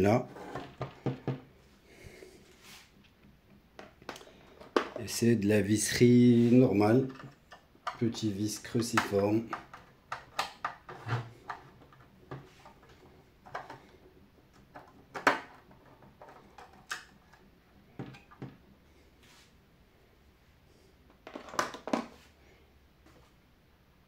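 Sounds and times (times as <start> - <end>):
plastic housing clicks and knocks: 7.1 - 8.1, 8.8 - 12.5.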